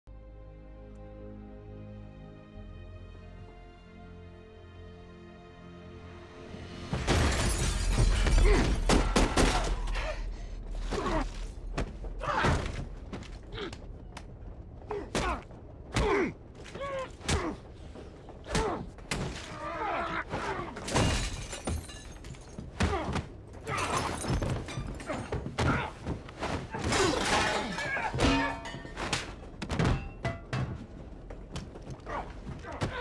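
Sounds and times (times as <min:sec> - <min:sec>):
glass breaking: 0:07.0 - 0:09.5, 0:20.8 - 0:22.6, 0:23.7 - 0:25.3, 0:26.9 - 0:30.5
punches and heavy thuds: 0:22.6 - 0:30.9.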